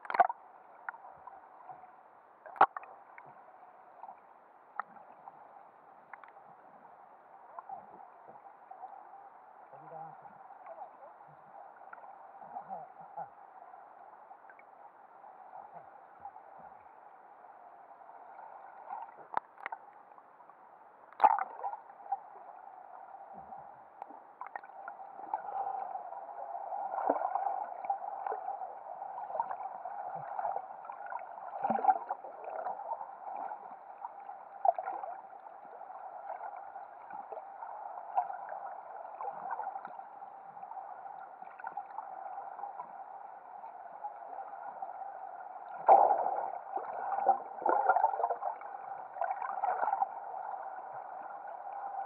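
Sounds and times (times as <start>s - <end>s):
underwater clicks and knocks: 0.0s - 1.0s, 2.5s - 2.9s, 19.2s - 19.8s.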